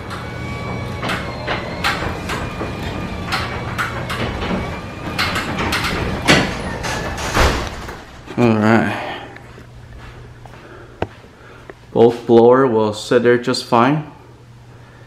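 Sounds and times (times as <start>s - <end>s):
rollers clattering along steel tracks: 0.0s - 8.1s
garage door opener motor hum: 0.0s - 8.3s
garage door knock: 0.1s - 8.1s.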